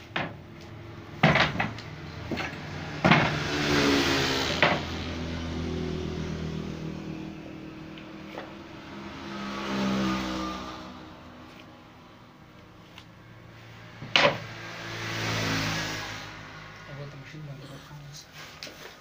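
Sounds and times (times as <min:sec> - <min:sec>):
engine humming: 0:00.0 - 0:18.3
wooden planks knocking on frame: 0:00.1 - 0:00.4, 0:01.2 - 0:03.4.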